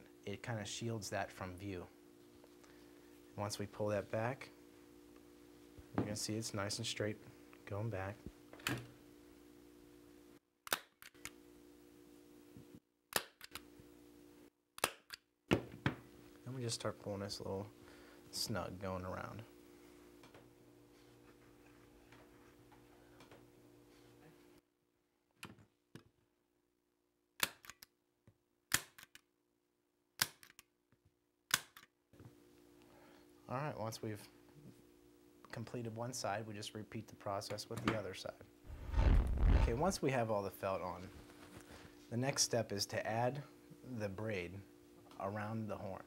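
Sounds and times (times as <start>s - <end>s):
low steady hum: 32.2s - 46.0s.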